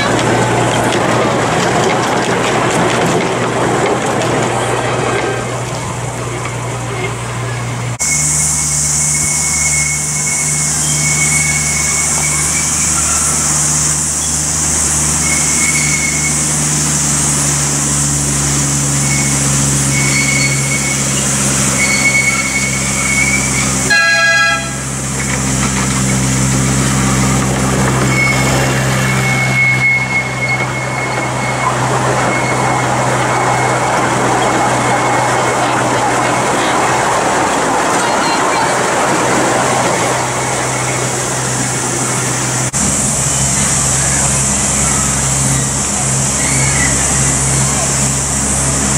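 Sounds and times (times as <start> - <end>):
miniature train locomotive running: 0.0 - 48.9
train horn toot: 21.8 - 25.0.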